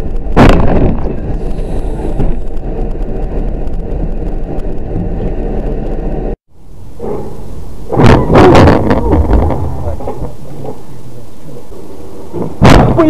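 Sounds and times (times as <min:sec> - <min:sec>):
car engine and tyre noise: 0:00.0 - 0:12.7.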